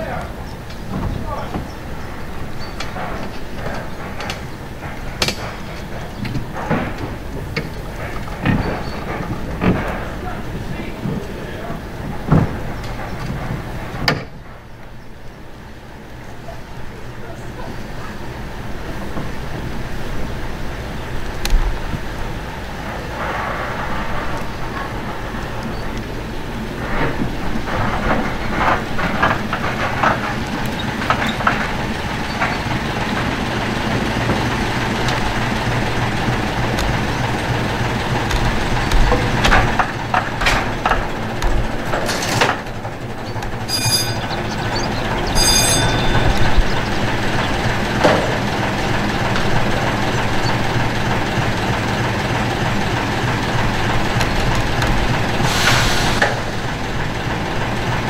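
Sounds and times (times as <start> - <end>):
diesel locomotive running: 0.0 - 58.0
wheel clicks over rails: 0.0 - 58.0
short shrill tones: 43.7 - 44.6, 45.3 - 46.6.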